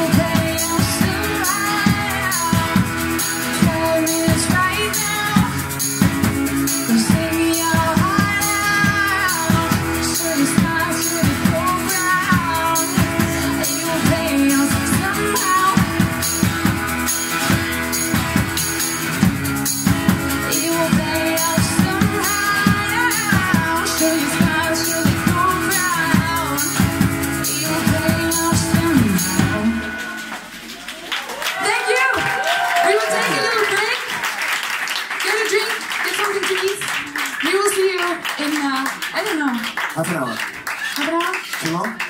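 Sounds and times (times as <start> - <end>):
woman singing: 0.0 - 16.6, 20.4 - 30.1
acoustic guitar: 0.0 - 31.2
drum kit beat: 0.0 - 31.4.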